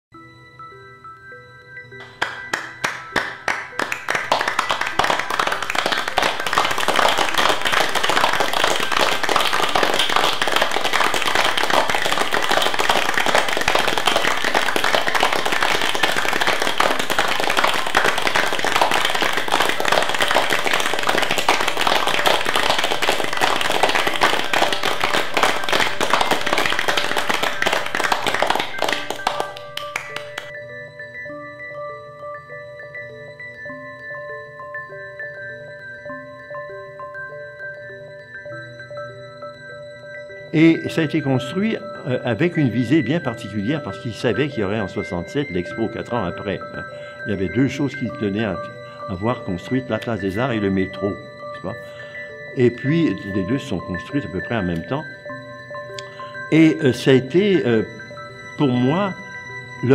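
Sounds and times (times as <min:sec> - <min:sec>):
crowd applause: 0:02.0 - 0:30.5.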